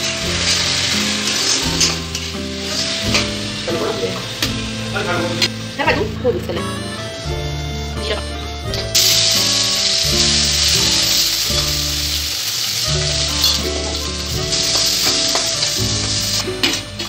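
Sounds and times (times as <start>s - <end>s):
onions sizzling in hot oil: 0.0s - 6.4s, 8.7s - 17.0s.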